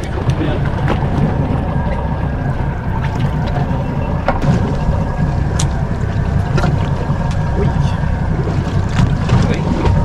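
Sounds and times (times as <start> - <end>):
boat drifting on water: 0.0 - 10.0
wind rumble on microphone: 0.0 - 10.0
light ticks: 5.5 - 5.8.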